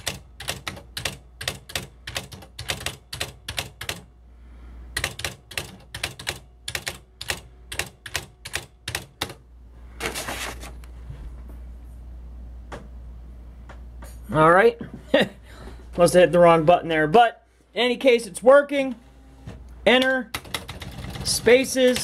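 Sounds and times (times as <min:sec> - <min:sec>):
steady low hum: 0:00.0 - 0:21.6
typewriter mechanical rattle: 0:05.0 - 0:09.4, 0:20.4 - 0:22.0.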